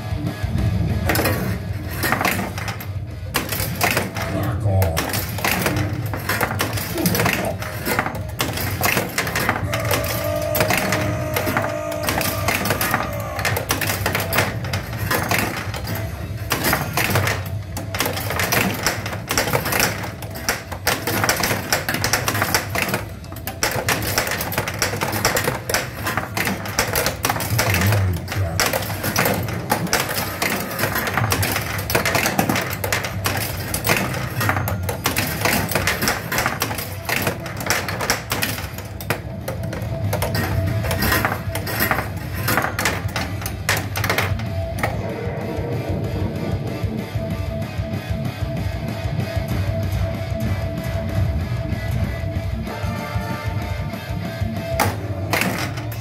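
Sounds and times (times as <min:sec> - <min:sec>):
game sound effects and music: 0:00.0 - 0:48.5
pinball switches clicking and clacking: 0:01.0 - 0:45.1, 0:54.6 - 0:56.0.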